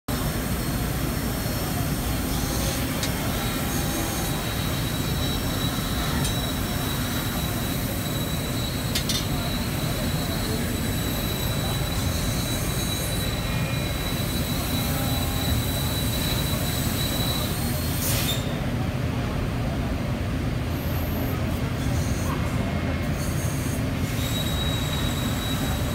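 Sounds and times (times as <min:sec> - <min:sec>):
thin high whine: 0:00.1 - 0:18.5.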